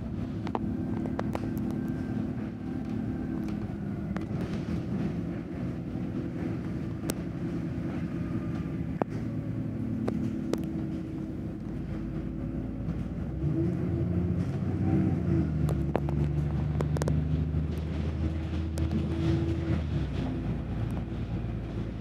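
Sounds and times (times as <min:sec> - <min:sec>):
bus engine running: 0:00.0 - 0:22.0
sharp clicks and rattles: 0:15.7 - 0:19.1.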